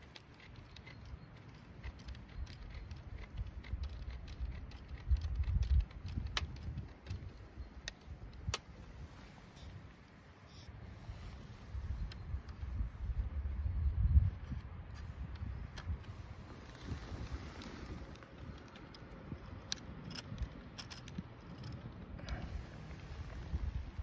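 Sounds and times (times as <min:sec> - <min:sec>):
sharp clicks: 0:00.0 - 0:09.0, 0:14.5 - 0:22.5
wind buffeting microphone: 0:00.0 - 0:10.2, 0:10.8 - 0:24.0.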